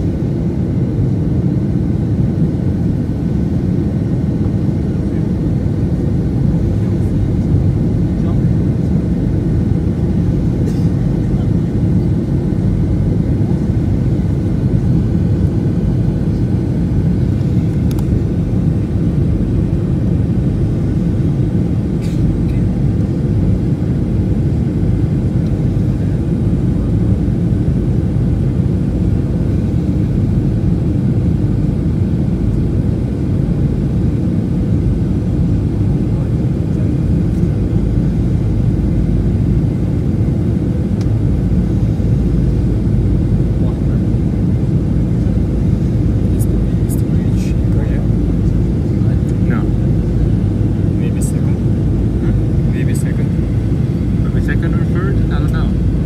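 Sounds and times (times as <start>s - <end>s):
airliner cabin rumble: 0.0s - 56.0s.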